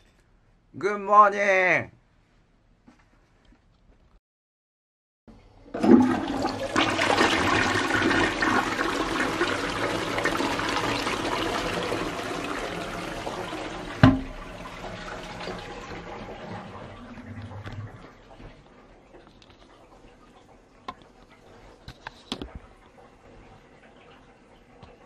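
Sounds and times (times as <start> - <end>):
toilet flushing: 5.3 - 25.0.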